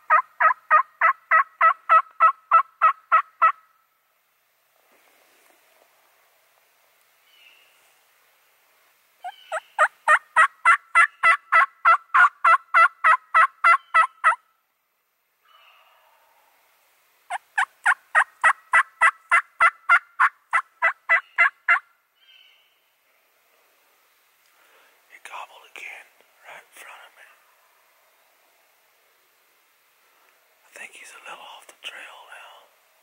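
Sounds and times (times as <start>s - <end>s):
turkey yelping: 0.1s - 3.6s, 9.2s - 14.4s, 17.3s - 22.4s.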